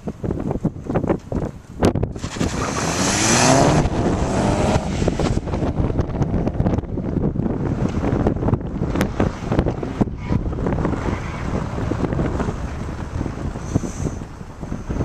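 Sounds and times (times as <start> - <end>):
wind buffeting microphone: 0.0 - 15.0
car engine revving: 2.1 - 13.5.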